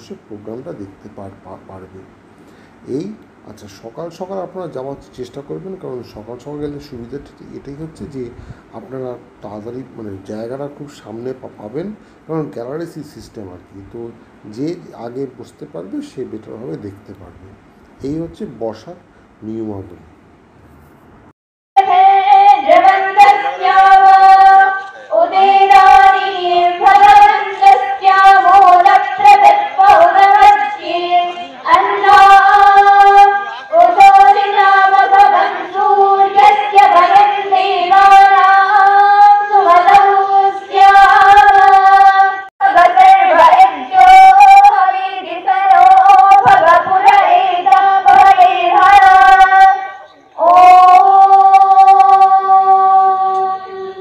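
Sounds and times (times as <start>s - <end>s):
high voice singing devotional melody: 21.8s - 54.0s.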